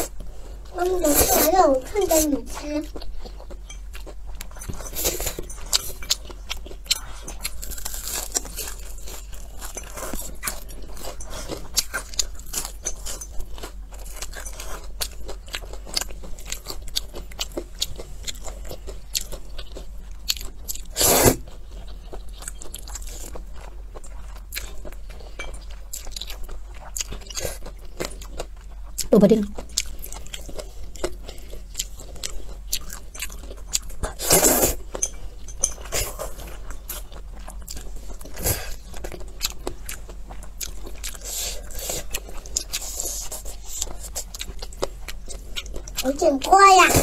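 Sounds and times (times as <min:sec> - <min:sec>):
noodles slurped and chewed: 0:00.0 - 0:47.0.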